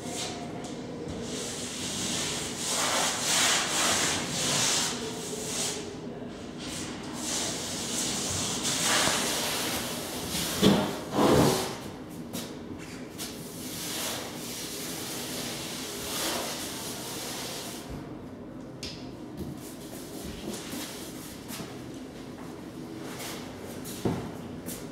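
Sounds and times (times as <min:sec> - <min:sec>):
paintbrush sweeping over wall: 0:01.2 - 0:05.9.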